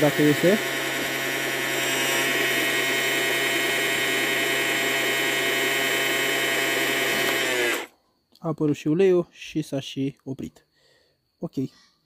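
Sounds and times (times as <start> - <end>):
electric motor high whine: 0.0 - 7.9.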